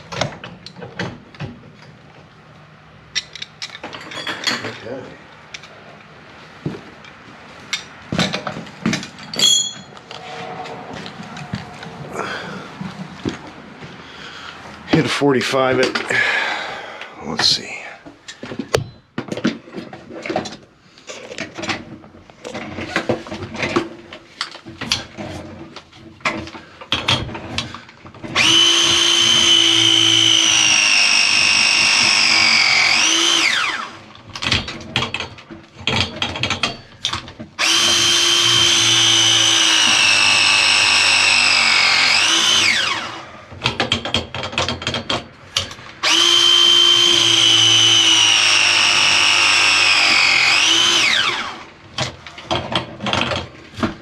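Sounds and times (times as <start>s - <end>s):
power drill whining: 9.4s - 13.6s, 28.2s - 34.1s, 37.6s - 43.4s, 46.0s - 51.8s.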